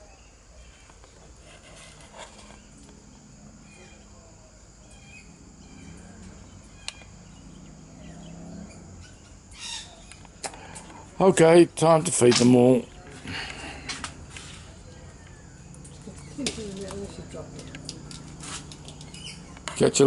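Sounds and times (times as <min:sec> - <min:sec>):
baby parrots chirping: 0:09.0 - 0:10.2, 0:19.0 - 0:19.6.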